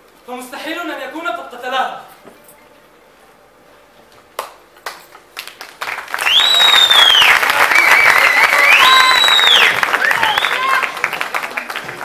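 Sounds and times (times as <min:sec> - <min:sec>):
audience applause: 0:04.8 - 0:12.0
shrill whistles: 0:06.2 - 0:10.9.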